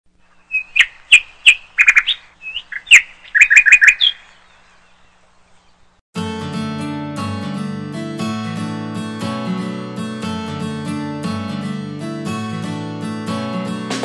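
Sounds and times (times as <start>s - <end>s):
small bird chirping: 0.2s - 6.0s
acoustic guitar music: 6.2s - 14.0s.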